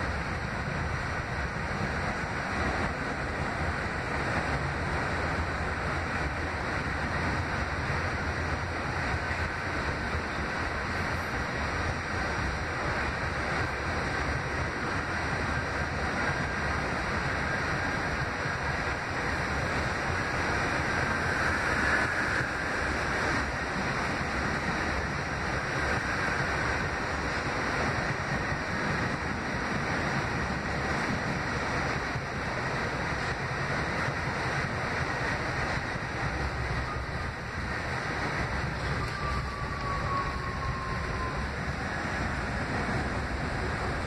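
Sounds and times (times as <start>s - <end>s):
subway wheels rumbling on rail: 0.0s - 44.0s
faint high whine: 35.9s - 44.0s.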